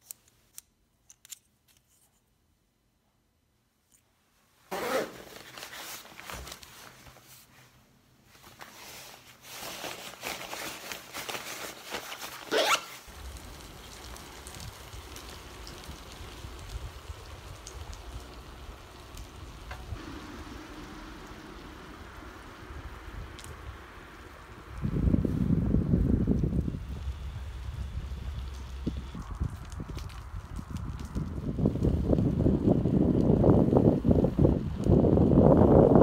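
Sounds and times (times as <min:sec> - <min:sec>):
rustling handling noise: 0:03.8 - 0:13.1
bicycle tyres on wet asphalt: 0:04.7 - 0:07.7, 0:08.3 - 0:36.0
wind buffeting microphone: 0:13.1 - 0:36.0.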